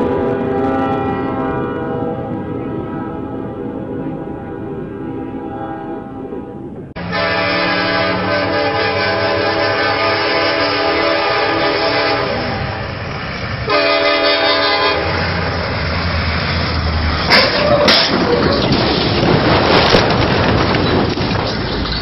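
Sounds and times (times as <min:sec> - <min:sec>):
locomotive air horn blasts: 0:00.0 - 0:03.7, 0:04.4 - 0:12.8, 0:13.6 - 0:15.3
train rumbling: 0:00.0 - 0:22.0.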